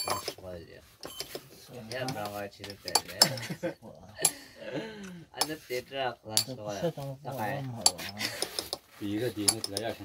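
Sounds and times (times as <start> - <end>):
metal rods scratching on stone: 0.0 - 3.6, 5.4 - 10.0
people talking: 1.6 - 4.2, 4.8 - 8.4, 9.0 - 10.0.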